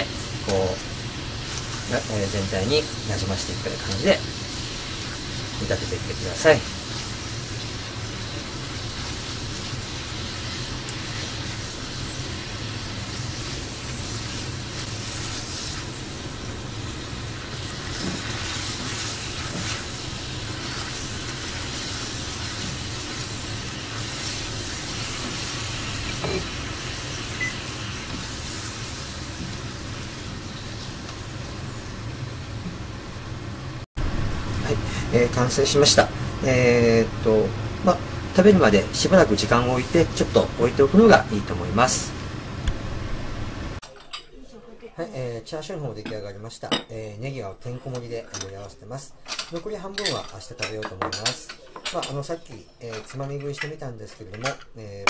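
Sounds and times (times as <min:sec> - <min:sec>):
sauce boiling and sizzling in pan: 0:00.0 - 0:43.8.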